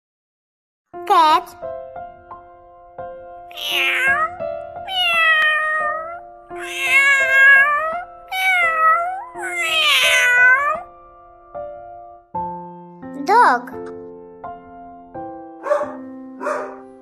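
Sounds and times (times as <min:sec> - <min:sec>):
background music with held notes: 0:00.9 - 0:17.0
cat meowing: 0:03.5 - 0:10.9.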